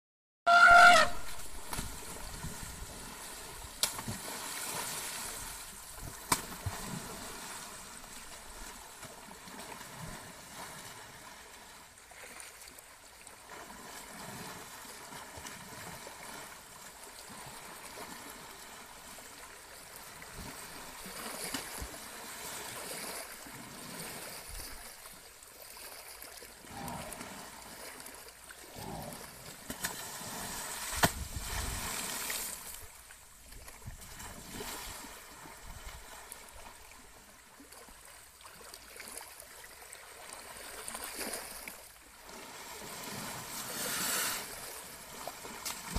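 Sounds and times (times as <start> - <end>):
elephant trumpeting: 0.5 - 1.4
short elephant call: 0.5 - 1.6
water splashing: 0.5 - 10.6, 17.3 - 45.9.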